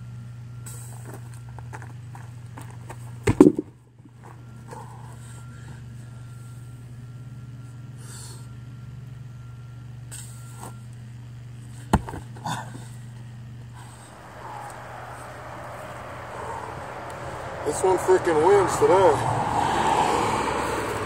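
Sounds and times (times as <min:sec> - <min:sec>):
heavy stone thudding on ground: 0:03.2 - 0:03.8, 0:11.9 - 0:12.5
sharp breaths of effort: 0:13.8 - 0:17.6
vehicle passing on highway: 0:13.8 - 0:21.0.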